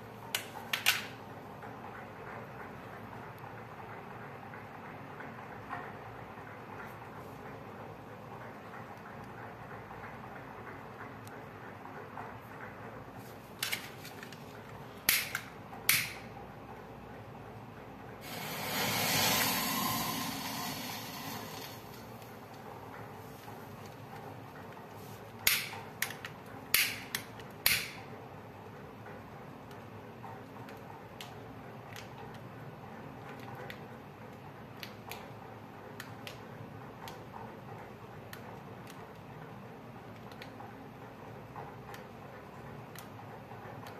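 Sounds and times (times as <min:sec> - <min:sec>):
low room noise: 0:00.0 - 0:43.9
sharp irregular clicking: 0:15.0 - 0:16.3, 0:25.4 - 0:28.1
match heads flaring with hiss: 0:18.2 - 0:22.2.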